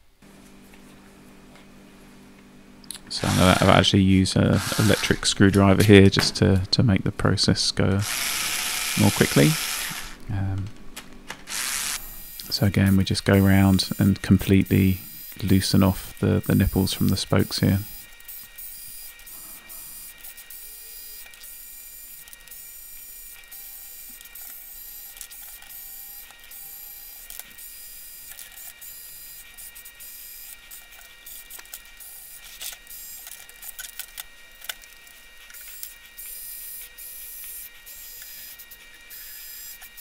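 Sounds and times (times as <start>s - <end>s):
electric screwdriver whirring: 3.2s - 3.8s, 4.5s - 5.3s, 8.0s - 10.2s, 11.5s - 12.5s, 20.0s - 40.0s.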